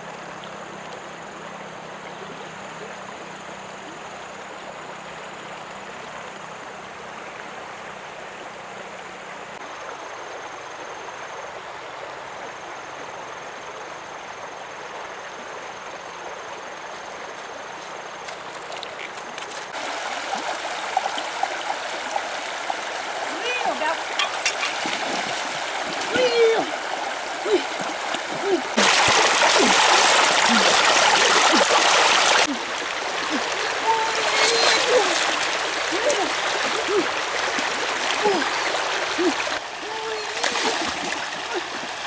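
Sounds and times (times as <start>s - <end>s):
river water rushing over rocks: 17.6s - 42.0s.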